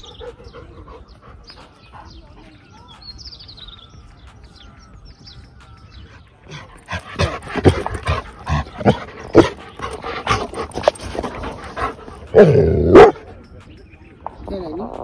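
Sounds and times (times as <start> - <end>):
dog panting: 0.0 - 2.7, 6.2 - 12.4.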